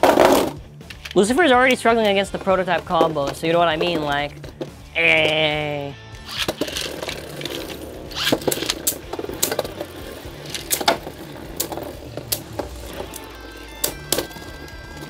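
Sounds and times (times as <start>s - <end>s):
spinning tops clacking: 6.2s - 15.0s
spinning tops whirring and scraping: 6.2s - 15.0s.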